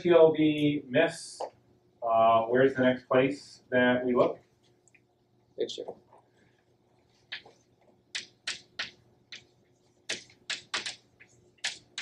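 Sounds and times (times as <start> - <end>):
chalk tapping and scratching: 7.1 - 12.0.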